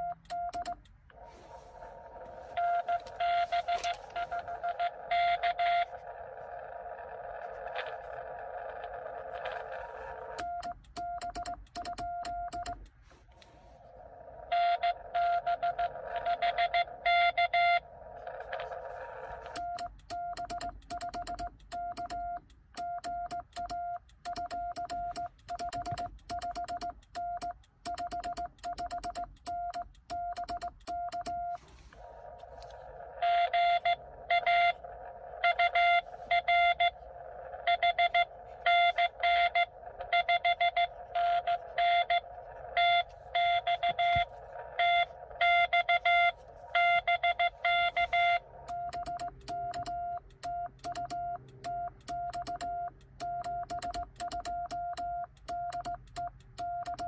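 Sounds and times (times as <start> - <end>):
morse code beeps: 0.0 - 0.9, 2.5 - 5.9, 10.4 - 12.9, 14.5 - 17.8, 19.5 - 31.6, 32.6 - 34.8, 35.4 - 37.0, 37.6 - 57.0
morse key clicking: 10.4 - 13.0, 19.5 - 31.5, 48.7 - 57.0.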